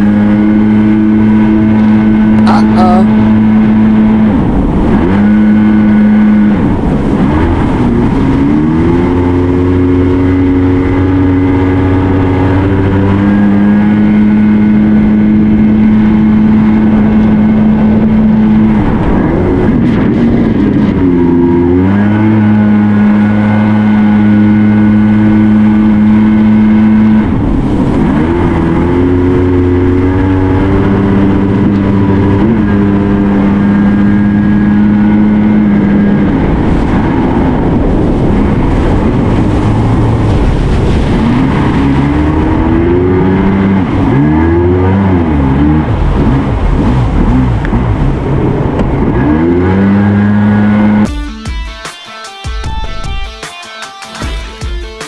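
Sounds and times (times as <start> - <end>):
watercraft engine revving: 0.0 - 51.1.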